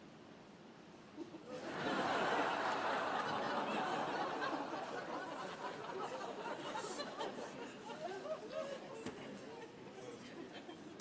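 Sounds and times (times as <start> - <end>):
audience laughing: 1.2 - 11.0.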